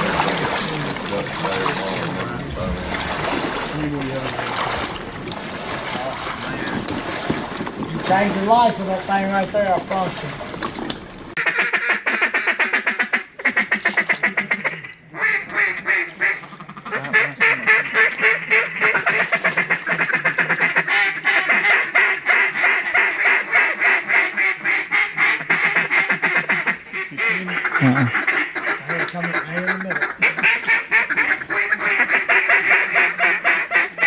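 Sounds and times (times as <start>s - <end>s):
duck call quacking: 11.4s - 34.0s.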